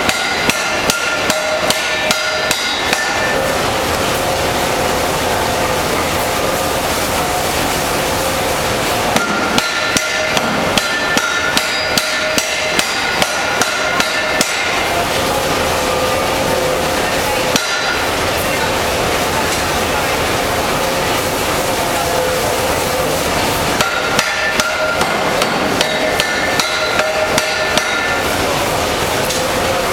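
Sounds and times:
power hammer clatter: 0:00.0 - 0:03.5, 0:09.2 - 0:15.0, 0:23.8 - 0:28.6
ringing hammer blows: 0:00.0 - 0:03.6, 0:09.2 - 0:15.0, 0:17.5 - 0:18.1, 0:23.8 - 0:28.3.

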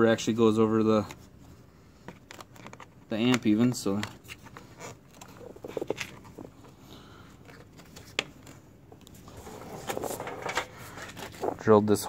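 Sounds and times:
plastic cover rustling: 0:09.2 - 0:11.8.

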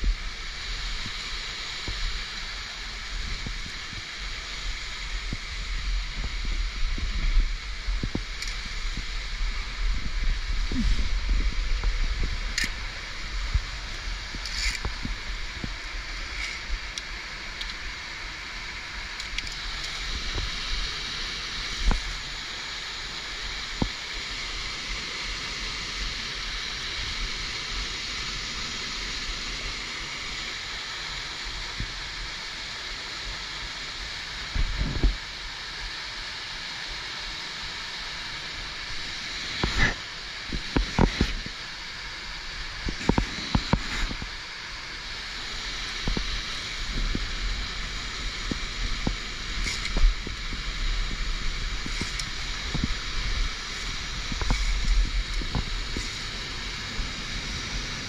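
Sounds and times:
waterfall rushing: 0:00.1 - 0:58.0.

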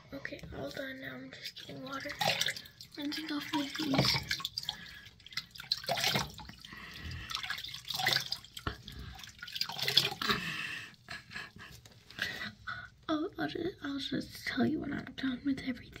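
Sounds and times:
water splashing at a sink: 0:00.3 - 0:10.6.

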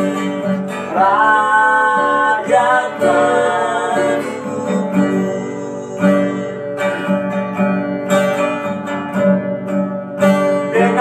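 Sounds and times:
person singing: 0:00.0 - 0:07.0, 0:10.6 - 0:11.0
acoustic guitar strumming: 0:00.0 - 0:11.0.

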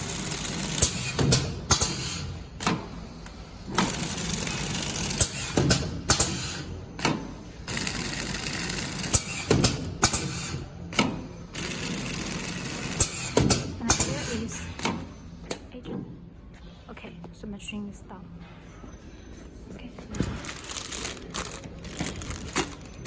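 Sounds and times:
packing machine clattering: 0:20.1 - 0:23.0.

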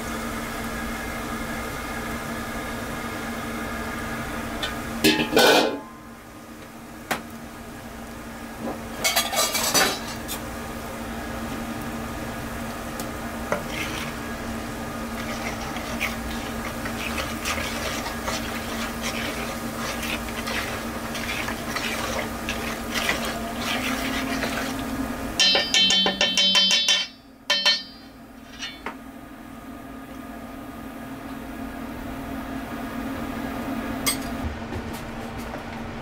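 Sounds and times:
steady hum: 0:00.0 - 0:36.0
metal utensil scraping cookware: 0:25.4 - 0:28.8.

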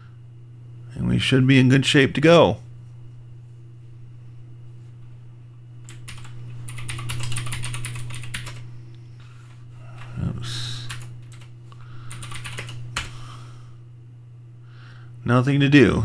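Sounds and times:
steady low hum: 0:00.0 - 0:16.0
typing on computer keyboard: 0:05.9 - 0:08.6, 0:12.1 - 0:13.1.

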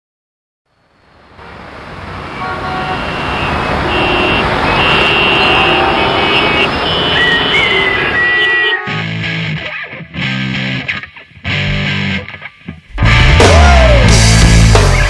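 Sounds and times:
road traffic noise: 0:00.7 - 0:11.7
car horns honking: 0:01.4 - 0:09.3.

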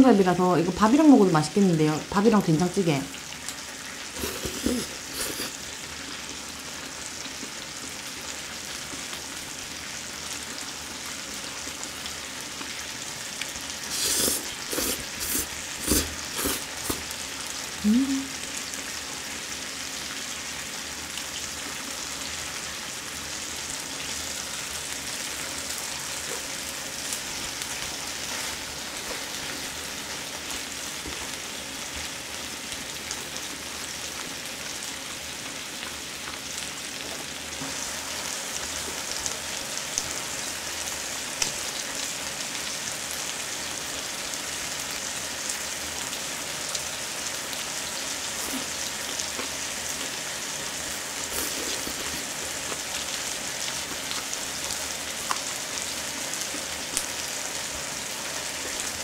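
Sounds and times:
meat sizzling on a grill pan: 0:02.4 - 0:59.0
clicking mouth and eating sounds: 0:13.9 - 0:17.1.

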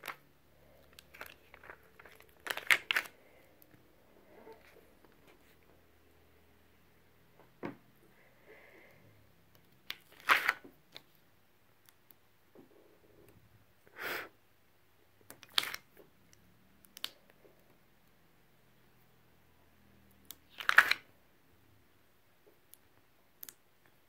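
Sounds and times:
crinkly plastic rustles: 0:00.8 - 0:03.2.

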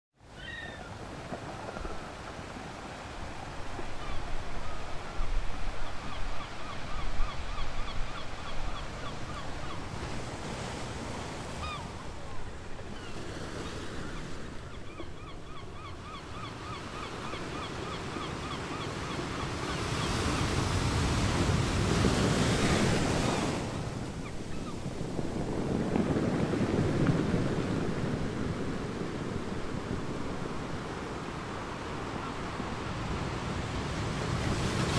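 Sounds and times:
ocean surf washing: 0:00.2 - 0:34.9
birds chirping: 0:11.6 - 0:21.2.

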